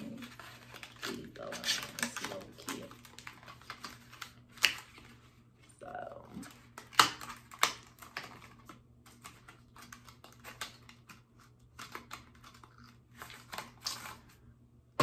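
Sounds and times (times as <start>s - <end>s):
plastic packaging clicks and taps: 6.7s - 12.8s.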